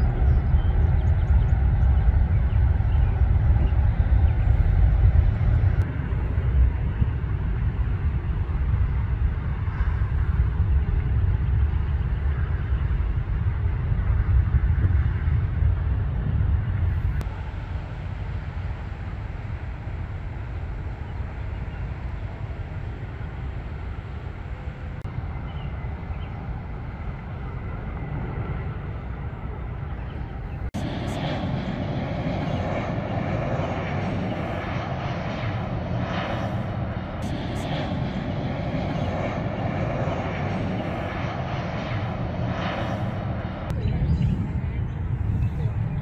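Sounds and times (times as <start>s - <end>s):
jet airliner engine noise: 0.0s - 46.0s
steady low rumble: 0.0s - 46.0s.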